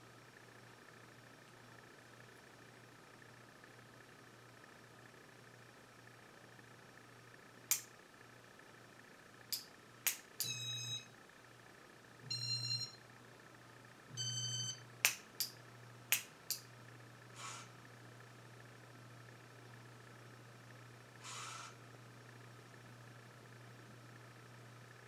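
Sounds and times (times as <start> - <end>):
ceiling fan motor hum: 0.0 - 25.0
sharp switch clicks: 7.7 - 7.9, 9.5 - 10.6, 15.0 - 16.7
short electronic beeps: 10.4 - 11.1, 12.3 - 13.0, 14.2 - 14.8.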